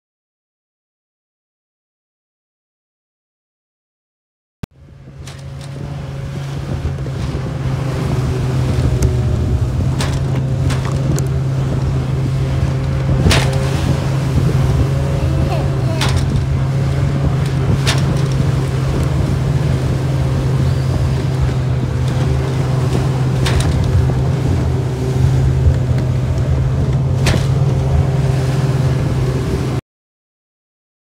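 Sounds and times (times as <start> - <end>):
outboard motor running: 4.7 - 29.8
water rushing along hull: 4.7 - 29.8
sharp knocks: 13.1 - 13.8, 27.2 - 27.7.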